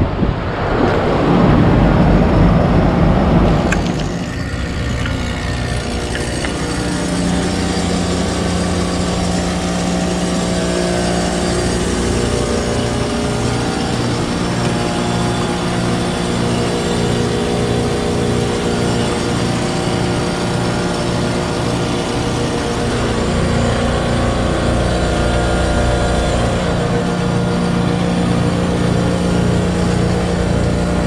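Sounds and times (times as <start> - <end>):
compressor hum: 0.0 - 31.0
fans blowing air: 0.0 - 31.0.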